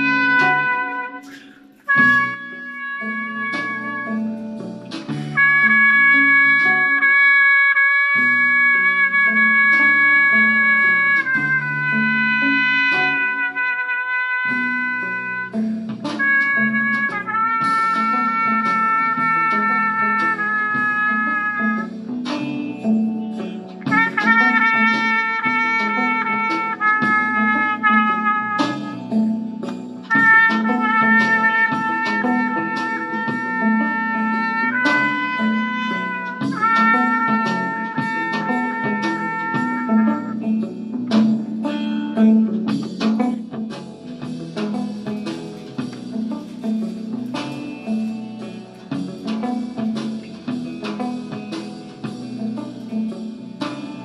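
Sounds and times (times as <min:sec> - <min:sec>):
drum kit: 0:00.0 - 0:54.0
guitar: 0:00.0 - 0:54.0
muted trumpet melody: 0:00.0 - 0:54.0
bass line: 0:01.9 - 0:45.0.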